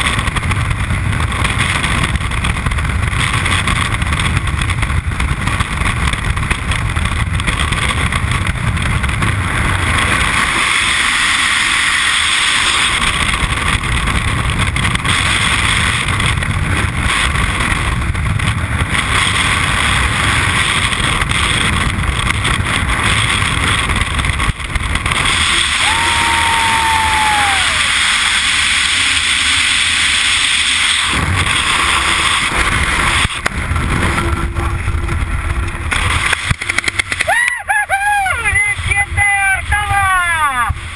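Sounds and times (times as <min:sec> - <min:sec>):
wind rushing over microphone: 0:00.0 - 0:40.9
steady tone bending down in pitch: 0:32.0 - 0:37.7.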